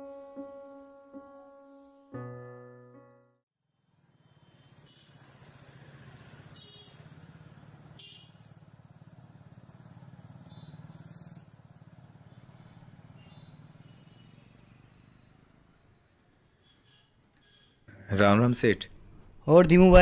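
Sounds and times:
vehicle engine running: 5.2 - 15.7.

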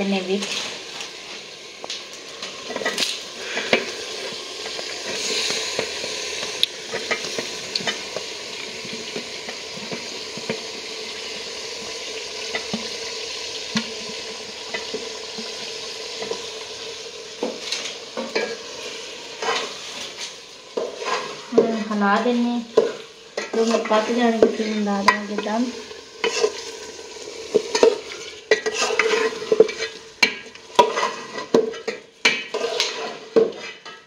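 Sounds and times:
meat and potatoes sizzling: 0.0 - 34.0
spoon clicking and scraping pan: 22.7 - 25.5, 26.2 - 26.9, 27.5 - 34.0.

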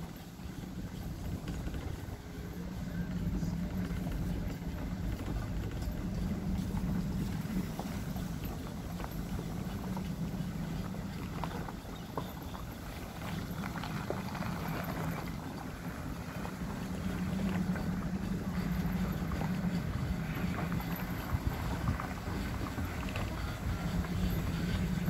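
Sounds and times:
trailer clicks and rattles: 0.0 - 25.0
truck drone and rolling tyres: 0.0 - 25.0
wind on microphone: 0.0 - 25.0.

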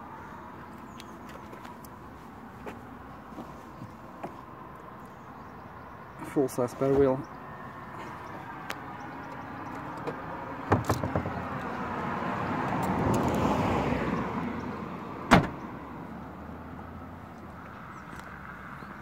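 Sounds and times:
car tailgate slamming shut: 15.3 - 15.6.

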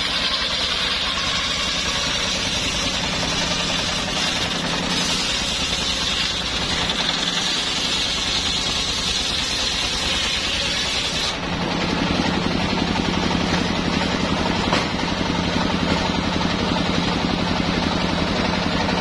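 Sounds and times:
saw blade ripping log: 0.0 - 12.0
sawmill engine running: 0.0 - 19.0.

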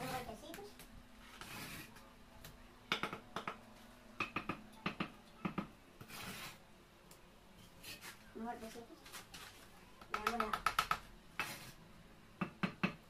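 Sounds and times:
trowel scraping: 1.2 - 2.0, 6.0 - 6.6, 7.8 - 8.2, 11.4 - 11.8.

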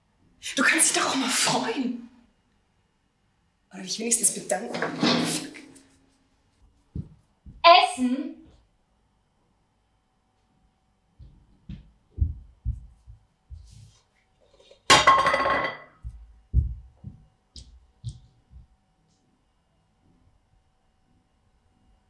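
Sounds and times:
soft low thuds: 6.9 - 7.7, 11.2 - 13.9, 16.0 - 18.8.

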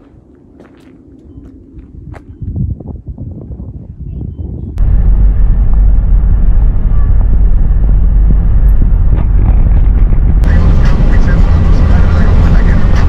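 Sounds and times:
wind noise: 1.5 - 13.0
vehicle rumbling on road: 4.8 - 13.0.

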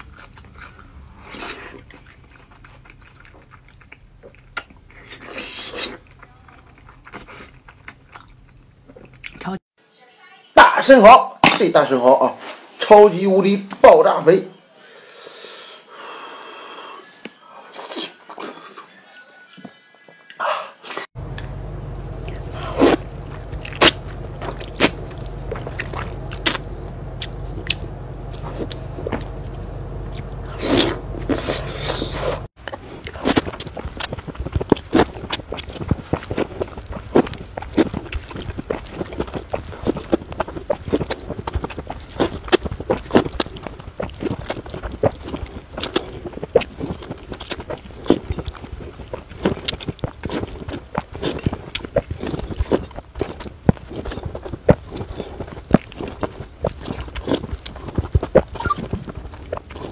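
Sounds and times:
steady low hum: 21.2 - 59.9
noodles being slurped: 30.2 - 59.9.

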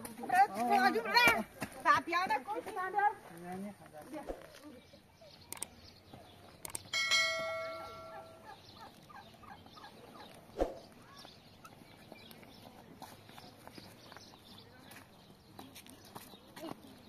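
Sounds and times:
mouse clicks: 5.5 - 5.7, 6.6 - 6.9
notification bell ding: 7.0 - 8.5.

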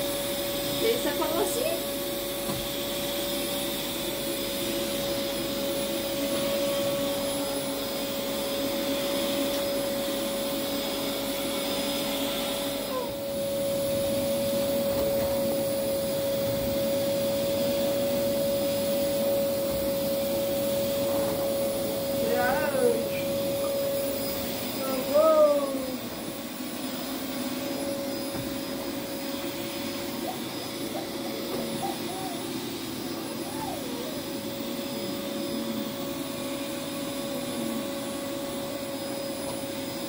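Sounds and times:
motor running with whine: 0.0 - 40.0.

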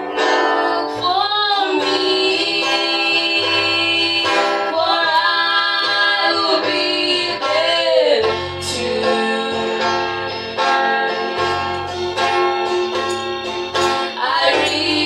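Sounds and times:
women singing gospel: 0.0 - 11.1, 13.8 - 15.0
acoustic guitar: 0.0 - 15.0.

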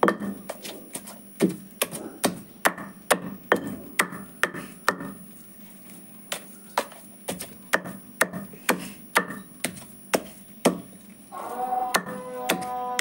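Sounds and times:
pestle pounding meat in mortar: 0.0 - 0.6, 6.8 - 10.9, 11.9 - 13.0.

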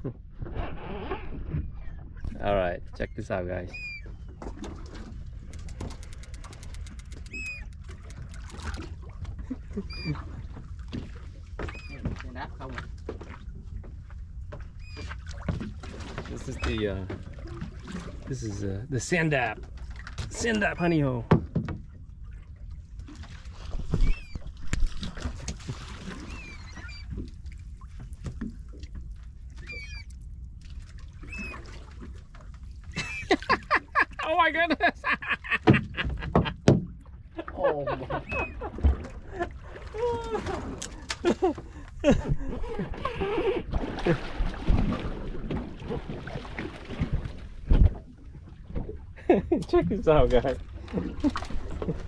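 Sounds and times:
water slapping boat hull: 0.0 - 52.0
high squeaky chirps: 6.0 - 7.8.

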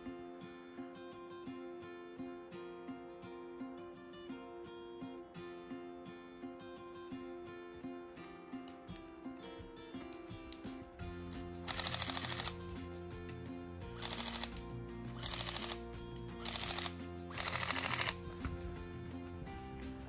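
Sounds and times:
background music: 0.0 - 20.0
airsoft rifle bursts: 14.0 - 14.6, 15.2 - 15.8, 16.4 - 18.2.

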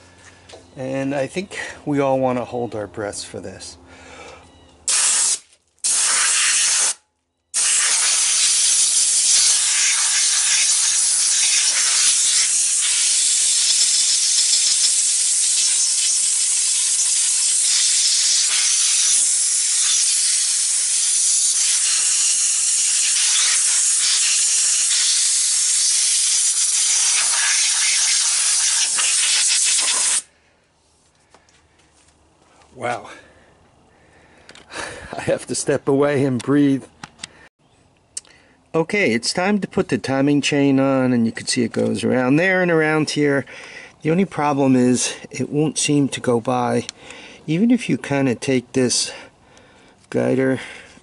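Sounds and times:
compressed air blow gun hissing: 4.9 - 7.0, 7.6 - 30.3.

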